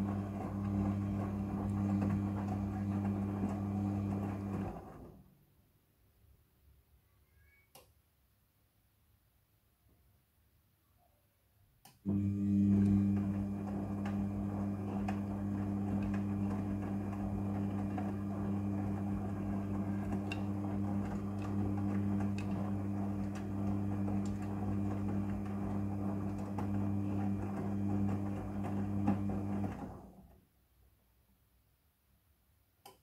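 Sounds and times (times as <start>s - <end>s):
washing machine drum running: 0.0s - 5.0s, 12.1s - 30.2s.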